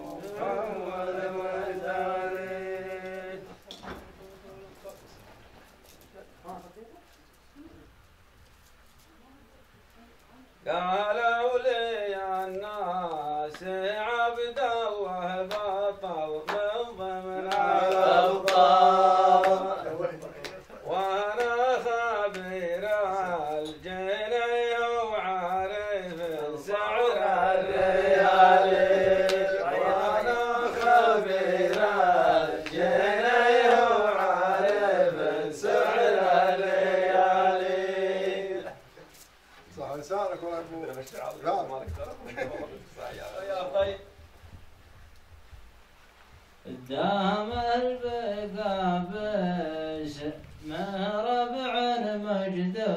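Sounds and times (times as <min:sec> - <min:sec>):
man chanting: 0:00.0 - 0:05.2, 0:10.6 - 0:39.1, 0:46.6 - 0:52.9.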